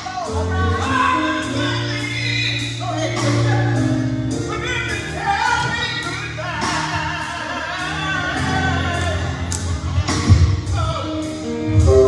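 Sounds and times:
bass line: 0.0 - 12.0
drum kit with cymbals: 0.0 - 12.0
person singing: 0.0 - 12.0.

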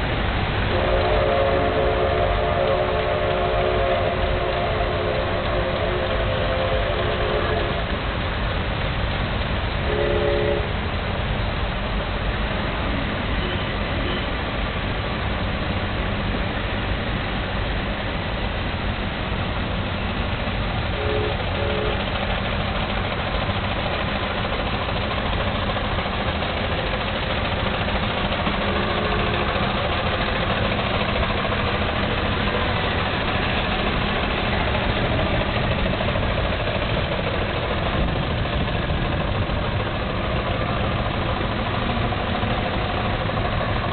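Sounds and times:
old car engines passing slowly: 0.0 - 43.9
car horn toots: 9.9 - 10.7, 21.0 - 22.0, 28.7 - 29.6.

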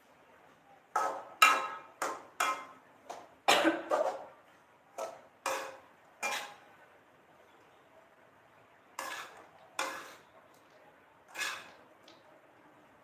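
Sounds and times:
metal spatula striking a wok: 1.0 - 3.2, 5.0 - 6.7, 9.0 - 10.2.

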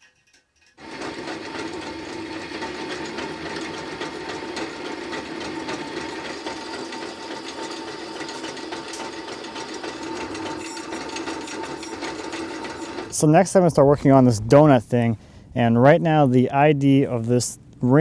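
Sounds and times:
drill press motor hum: 0.7 - 13.2
drill bit cutting steel: 0.8 - 13.2.

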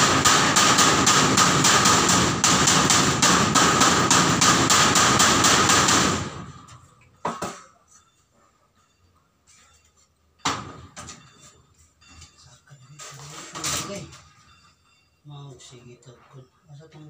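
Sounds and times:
pounding on metal window frame: 0.0 - 6.5.

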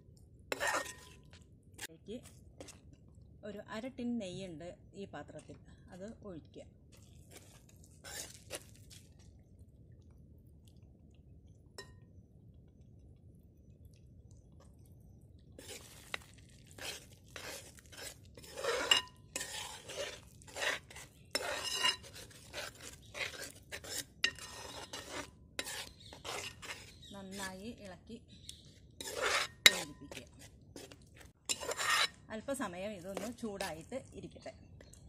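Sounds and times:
spoon scraping metal pot: 0.5 - 1.9, 8.0 - 8.6, 15.6 - 27.6, 28.4 - 32.3, 33.0 - 33.8.

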